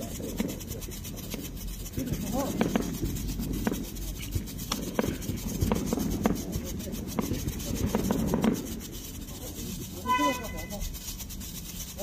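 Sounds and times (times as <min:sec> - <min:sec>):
firework sputtering crackle: 0:00.0 - 0:12.0.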